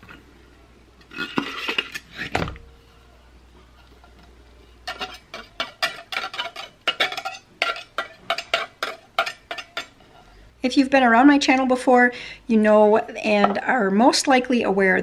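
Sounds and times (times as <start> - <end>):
knife scraping inside tin can: 1.0 - 2.4, 4.8 - 9.9.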